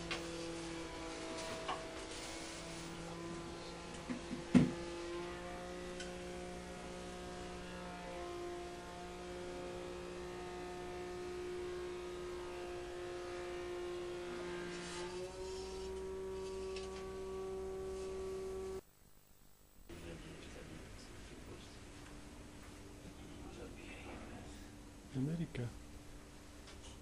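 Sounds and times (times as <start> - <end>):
hum of held tones: 5.3 - 21.1.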